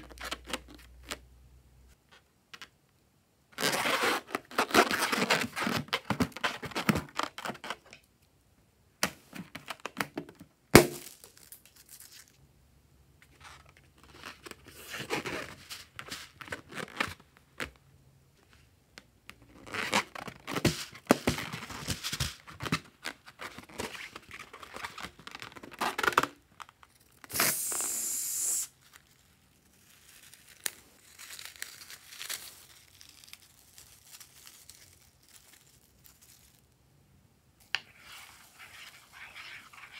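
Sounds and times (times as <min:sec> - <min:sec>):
steady hiss: 0:27.3 - 0:28.8.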